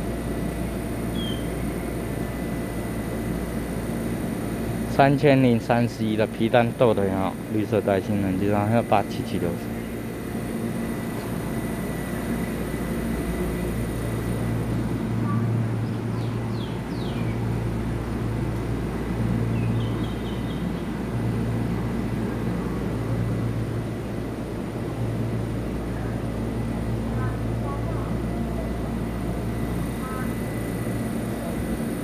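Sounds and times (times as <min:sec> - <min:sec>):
train equipment low hum: 0:00.0 - 0:32.0.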